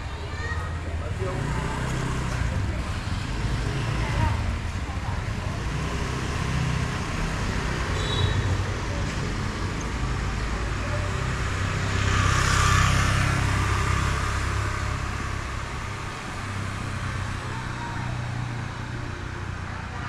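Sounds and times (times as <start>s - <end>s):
steady traffic engine hum: 0.0s - 20.0s
vehicle passing: 8.8s - 20.0s.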